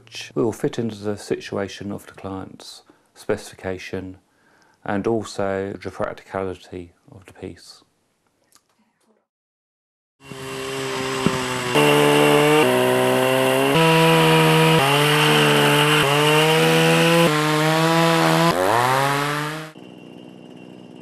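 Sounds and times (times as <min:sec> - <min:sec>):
pole saw engine running: 0:10.2 - 0:19.8.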